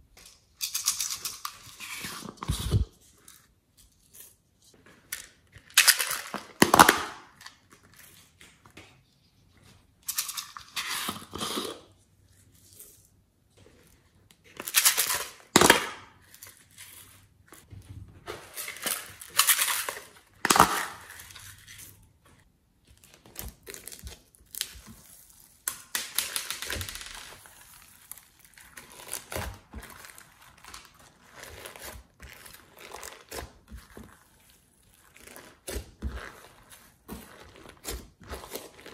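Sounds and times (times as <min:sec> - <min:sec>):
plastic cups crinkling: 0:04.2 - 0:08.6, 0:23.0 - 0:38.9.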